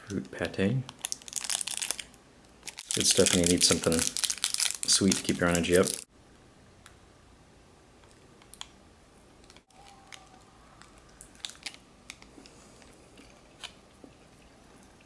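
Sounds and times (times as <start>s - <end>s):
quiet chewing: 9.7s - 15.0s.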